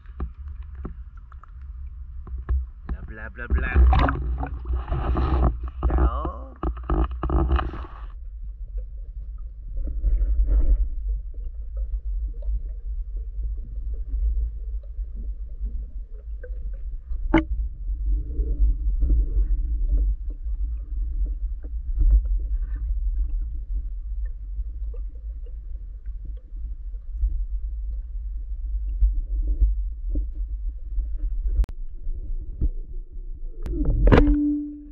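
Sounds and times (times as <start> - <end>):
faint knocks and crackles: 0.0 - 15.0
low underwater rumble: 0.0 - 34.9.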